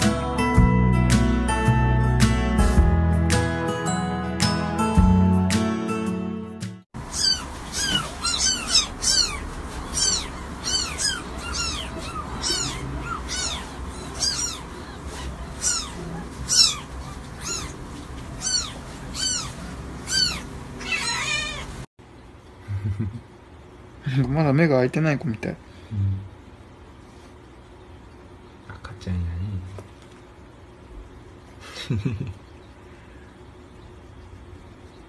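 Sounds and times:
kittens mewing: 7.0s - 21.8s.

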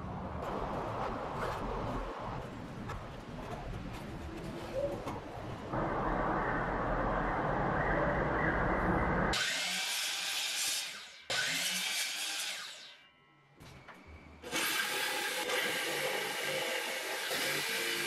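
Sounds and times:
power saw cutting wood: 9.3s - 13.1s, 14.4s - 18.0s
electric jigsaw cutting board: 9.4s - 13.0s, 14.4s - 18.0s.

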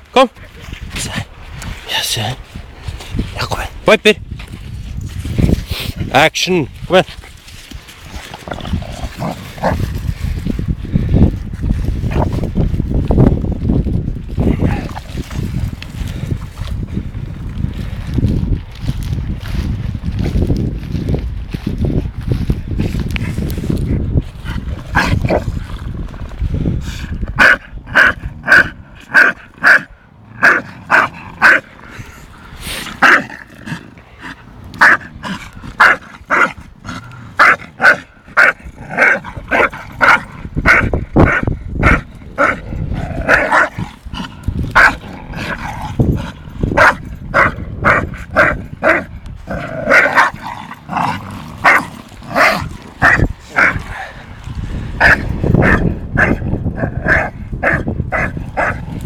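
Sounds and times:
dog barking: 27.4s - 31.6s, 35.8s - 36.6s, 37.4s - 42.6s, 44.8s - 45.0s, 46.8s - 49.1s, 51.6s - 53.8s, 55.0s - 56.4s, 57.0s - 58.8s.

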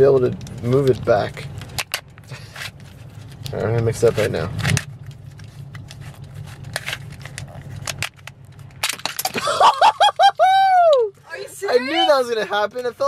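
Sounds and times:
car hum: 0.0s - 13.0s
high-pitched cries of surprise: 9.4s - 12.2s.

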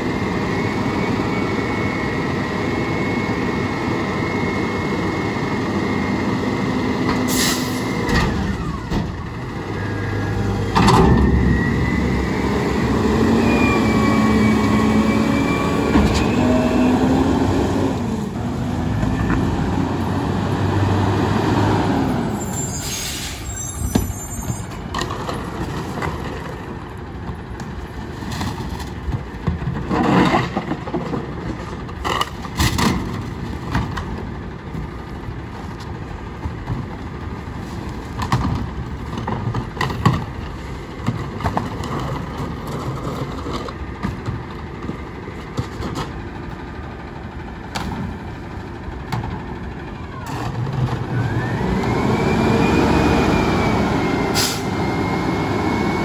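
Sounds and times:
engine revving: 10.0s - 22.2s, 50.8s - 56.0s
garbage truck idling: 30.6s - 52.2s.

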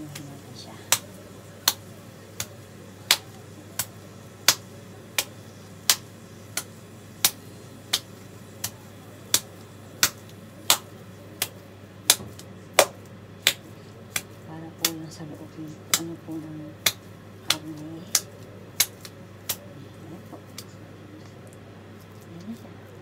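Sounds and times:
meat patty slapped between palms: 0.9s - 15.0s, 15.9s - 16.1s, 16.8s - 19.6s.

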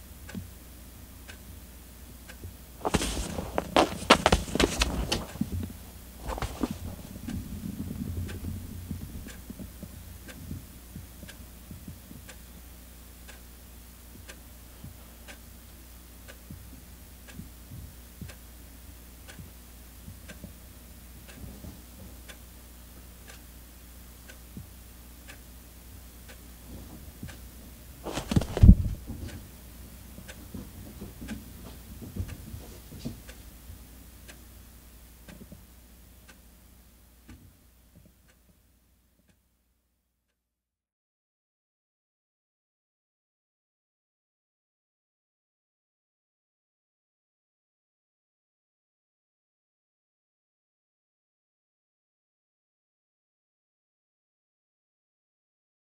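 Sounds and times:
rustling of felt mat: 2.8s - 7.4s, 28.0s - 29.5s
rustle and bump: 2.8s - 8.4s, 28.0s - 29.5s
clock ticking: 23.2s - 23.5s.

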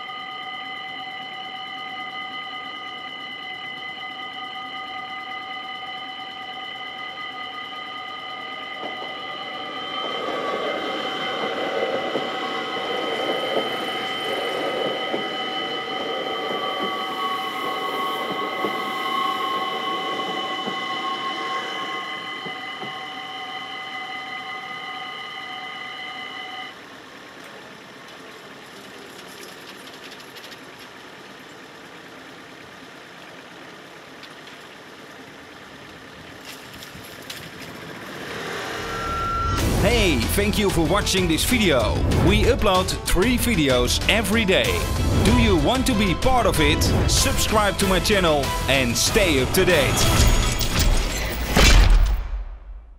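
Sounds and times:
level crossing bells ringing: 0.0s - 27.3s, 37.7s - 51.5s
electric train rumbling on rails: 0.0s - 52.8s.

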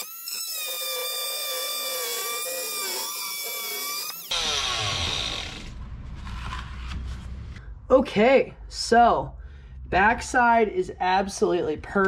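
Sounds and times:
power cutter whining: 0.0s - 5.8s.

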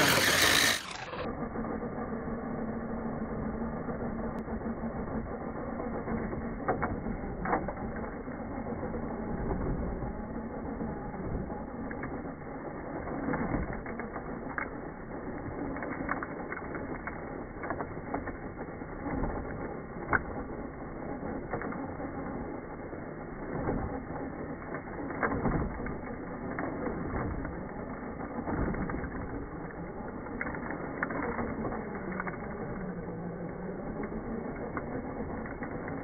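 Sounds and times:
wheel digging into gravel: 0.0s - 1.7s
toy car motor whirring: 0.0s - 36.0s.

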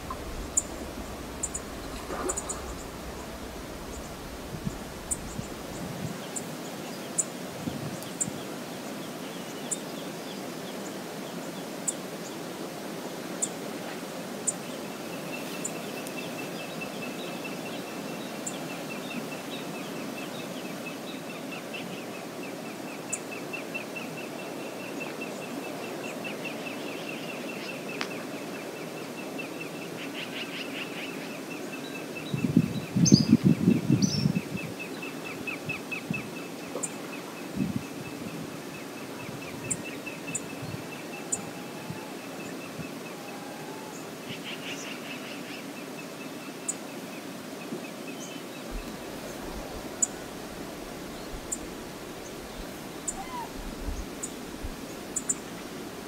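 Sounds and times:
bird chirps: 0.0s - 5.8s
rapid pulsed high trill: 0.0s - 5.8s
loud low rumbling: 0.0s - 6.2s
outdoor background noise: 0.0s - 56.0s.

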